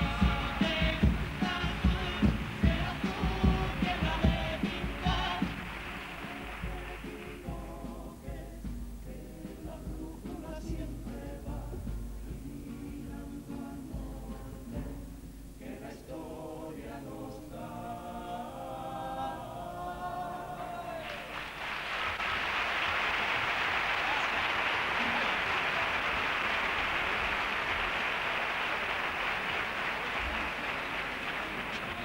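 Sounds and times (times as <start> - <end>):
choir singing: 0.0 - 21.3
audience applauding: 0.6 - 7.4, 21.0 - 32.0.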